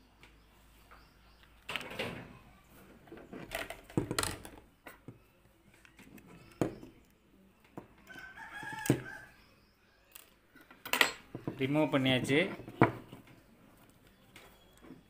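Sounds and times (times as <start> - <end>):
rooster crowing: 8.0 - 9.4.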